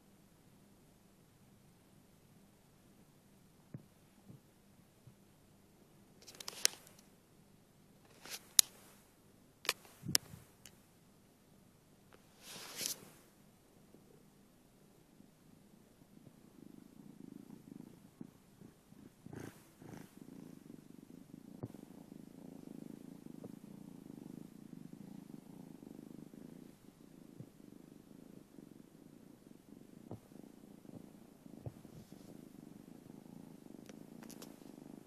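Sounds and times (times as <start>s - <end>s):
kitten purring: 15.2s - 35.0s.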